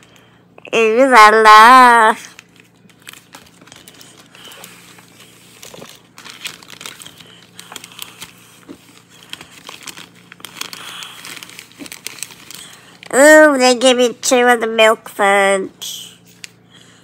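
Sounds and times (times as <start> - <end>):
plastic snack bag crinkling: 2.0 - 13.6.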